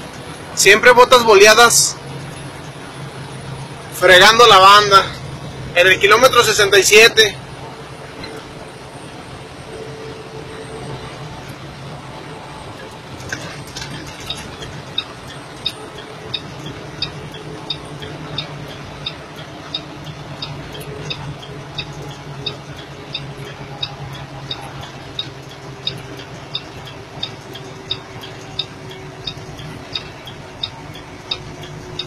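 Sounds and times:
engine and road drone: 0.0 - 32.0
indicator flasher clicking: 13.4 - 32.0.

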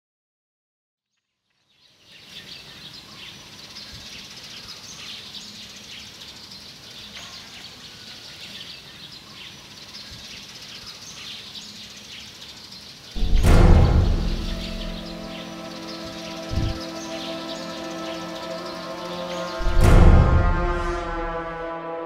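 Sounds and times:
birds chirping: 1.6 - 21.5
steady background hiss: 1.8 - 13.3.

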